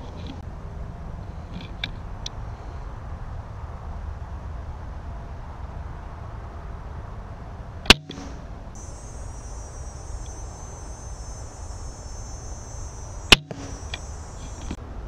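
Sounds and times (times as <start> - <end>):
crossbow firing cracks: 7.9 - 8.4, 13.2 - 14.8
steady high buzz: 7.9 - 14.8.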